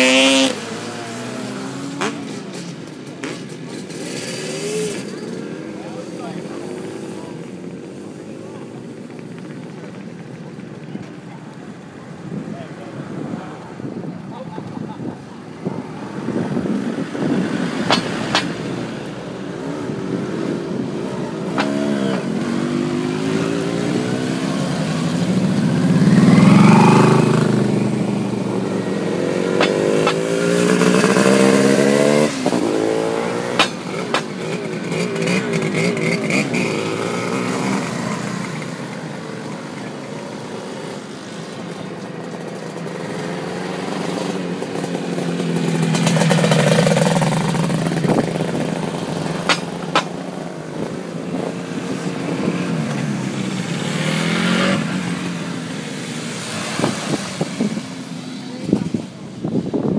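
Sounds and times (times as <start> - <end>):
motorcycles revving past: 0.0 - 10.0, 15.0 - 59.8.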